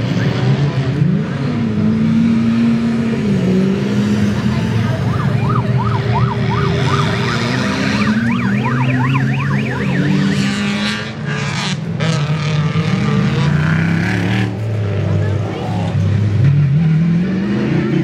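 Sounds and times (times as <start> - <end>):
race vehicle engines: 0.0 - 18.0
siren wailing: 4.6 - 11.1.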